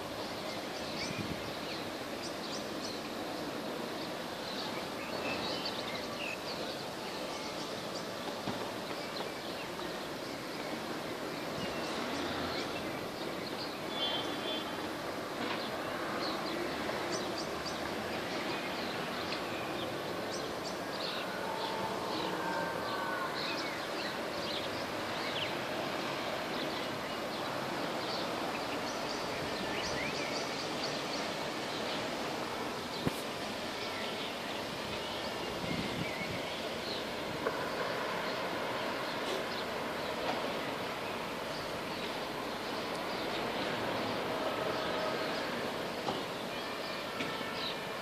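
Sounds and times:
city background noise: 0.0 - 48.0
birds chirping: 0.2 - 47.9.

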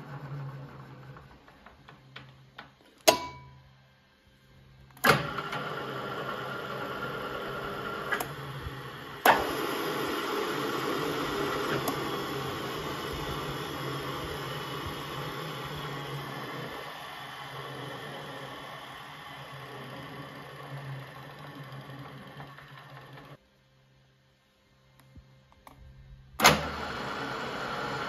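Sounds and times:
drill press motor running: 0.0 - 2.8, 4.9 - 23.4, 26.4 - 28.0
switch clack: 2.1 - 3.7.

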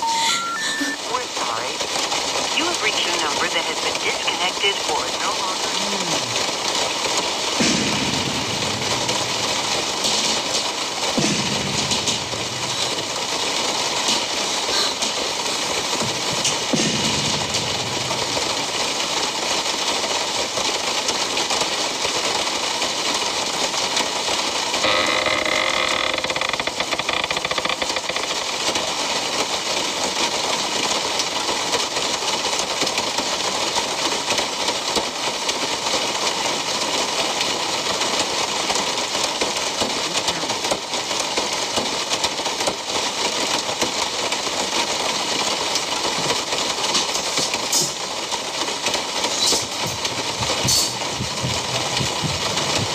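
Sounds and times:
pitched tone: 0.0 - 1.2
rumbling suspense hiss: 0.9 - 31.3.

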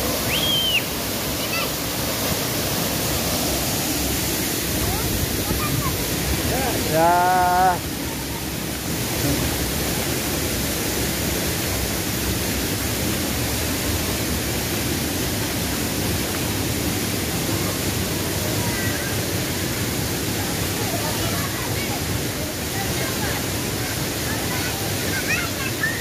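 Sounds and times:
waterfall and stream rushing: 0.0 - 26.0
person saying a word: 6.5 - 7.8.

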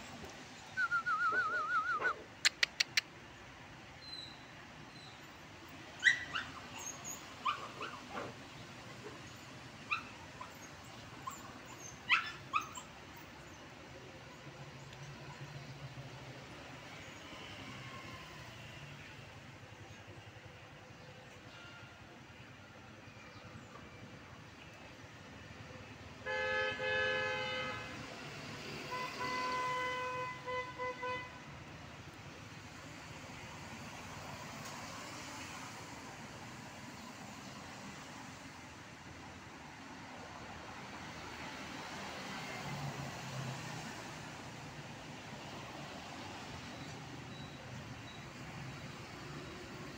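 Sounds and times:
small dog yipping and barking: 6.0 - 8.4, 9.8 - 13.0
traffic hiss: 12.9 - 23.0, 24.6 - 49.9
vehicle horn honking: 26.2 - 27.9, 28.9 - 31.4.

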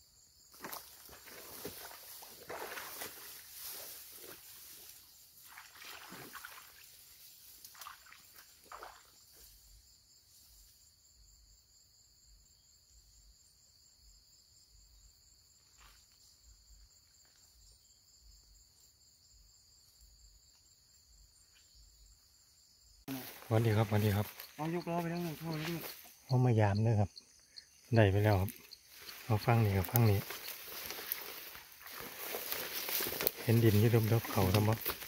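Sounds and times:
footsteps in grass and mud: 0.5 - 9.6, 23.1 - 26.3, 27.9 - 35.0
high-pitched insect drone: 23.1 - 35.0.

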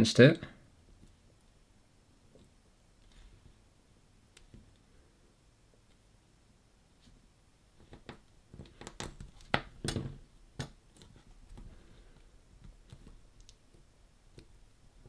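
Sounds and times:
fingers clicking ribbon cable into connector: 7.8 - 11.7, 12.6 - 14.6.

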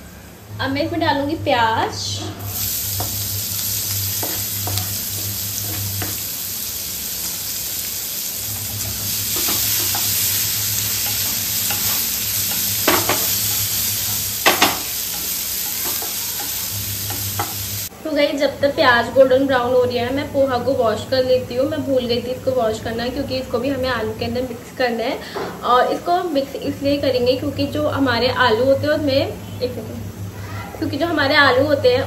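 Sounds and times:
onions sizzling in oil: 1.6 - 32.0
spatula knocking on pan: 4.2 - 6.2, 11.0 - 13.4, 14.1 - 17.7.

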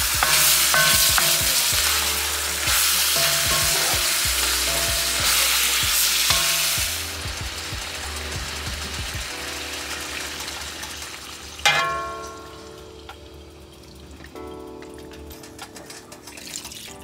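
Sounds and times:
spatula stirring and scraping: 0.0 - 7.0
chicken and onions sizzling in wok: 0.0 - 13.1.

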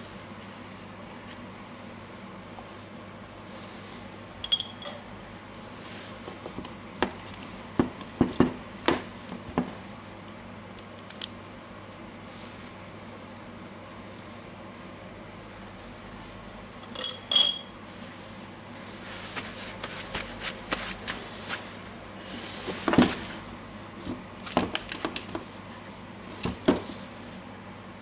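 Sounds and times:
metallic clinks: 4.4 - 5.2, 16.9 - 17.7.

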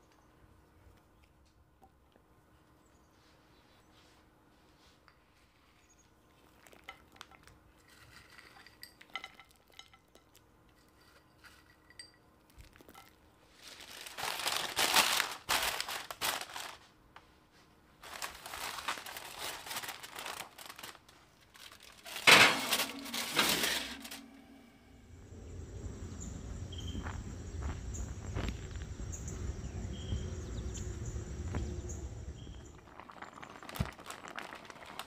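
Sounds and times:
faint clicks and clinks: 6.8 - 13.2
aluminium foil crinkling: 12.6 - 17.0, 18.0 - 24.4, 32.7 - 35.0.

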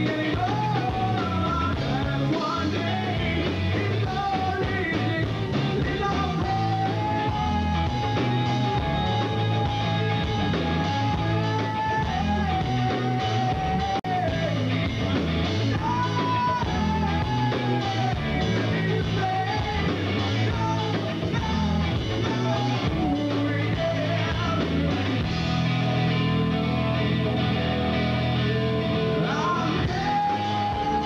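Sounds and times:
bending lead guitar melody: 0.0 - 31.0
rock band playing: 0.0 - 31.0.

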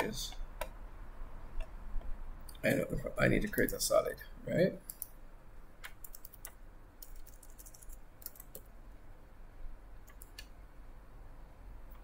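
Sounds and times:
faint low hum: 0.0 - 12.0
keyboard typing: 4.8 - 5.1, 5.8 - 8.7, 10.0 - 10.5.

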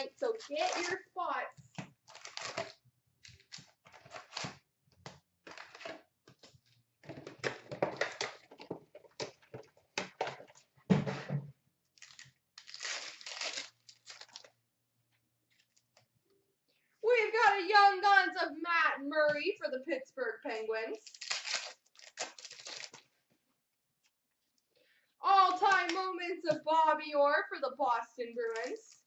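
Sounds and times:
wrappers crinkling and tearing: 0.4 - 1.0, 2.0 - 4.6, 11.9 - 14.6, 21.0 - 23.1.

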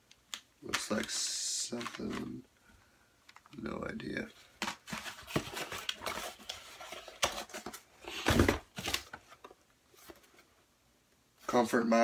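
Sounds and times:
packaged items rustling in box: 4.6 - 9.4.

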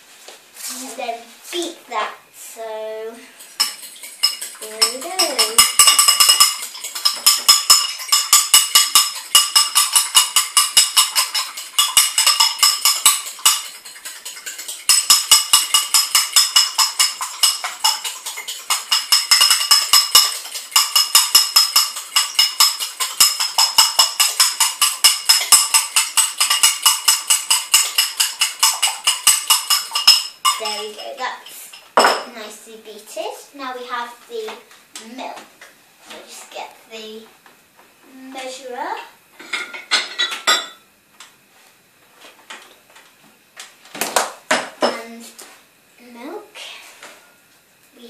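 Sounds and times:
fork clinking in ceramic bowl: 3.6 - 31.0.

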